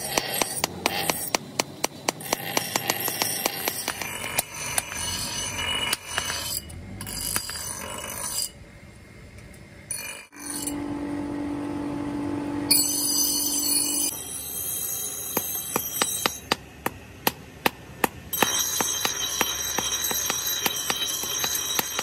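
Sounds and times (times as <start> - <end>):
hammer striking hot steel on anvil: 0.0 - 8.6, 12.7 - 22.0
forge air blower humming: 10.7 - 14.2.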